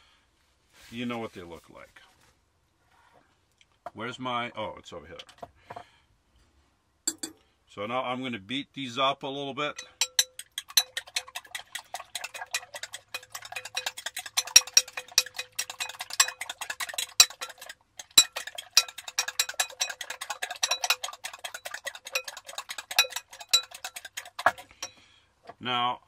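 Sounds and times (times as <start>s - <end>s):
utensil clicking against bowl: 9.8s - 24.9s.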